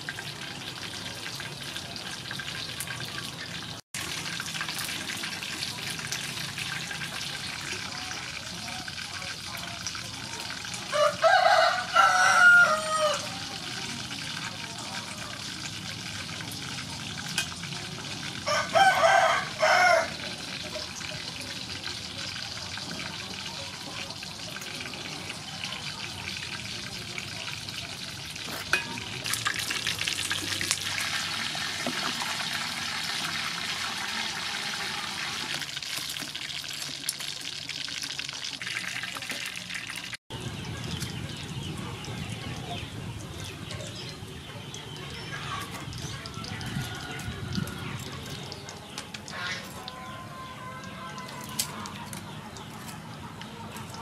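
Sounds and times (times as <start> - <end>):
crabs sizzling in oil: 0.0 - 54.0
rooster crowing: 10.9 - 13.4, 18.4 - 20.3.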